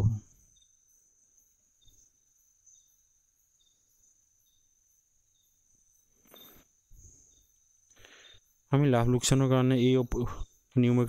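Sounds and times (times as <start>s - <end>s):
faint high chirps: 0.0s - 11.0s.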